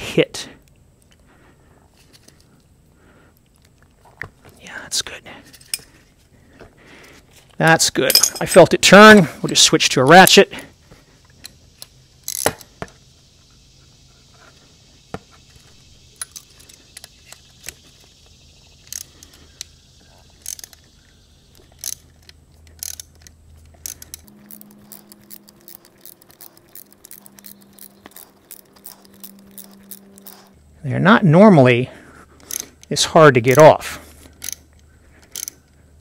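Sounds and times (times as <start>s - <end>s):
metal clinks and clicks: 8.0s - 8.6s, 15.6s - 17.8s, 20.3s - 20.9s, 21.6s - 30.6s, 32.4s - 35.8s
ratchet pawl clicks: 18.8s - 19.8s, 20.4s - 20.9s, 21.5s - 30.5s, 32.4s - 35.8s.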